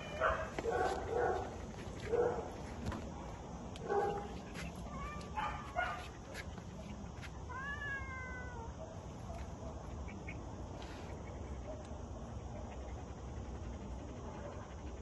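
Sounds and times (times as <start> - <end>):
cat meowing: 7.5 - 8.7.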